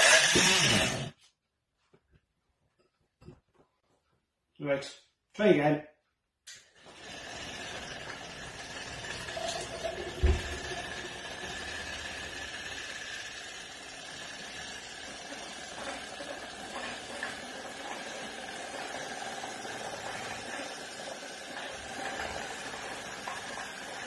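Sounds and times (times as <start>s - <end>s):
electric drill motor whining: 0.0s - 1.1s, 6.8s - 24.0s
pump pumping water: 0.0s - 1.1s, 6.8s - 24.0s
thump: 10.2s - 10.5s.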